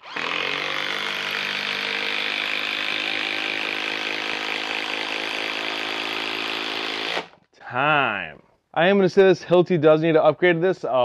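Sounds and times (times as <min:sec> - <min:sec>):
impact driver driving screw into wood: 0:00.0 - 0:07.4.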